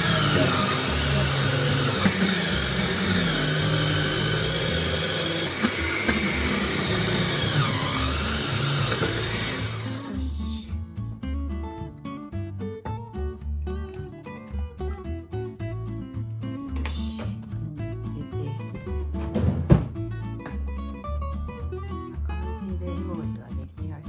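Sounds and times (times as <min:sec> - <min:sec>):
food processor grinding: 0:00.0 - 0:10.6
acoustic guitar music: 0:09.7 - 0:24.0.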